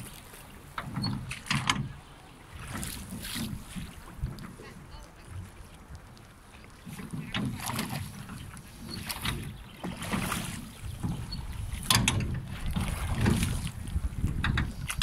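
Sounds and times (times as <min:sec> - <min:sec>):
oars splashing in water: 0:00.0 - 0:15.0
wind rumbling on microphone: 0:00.0 - 0:15.0.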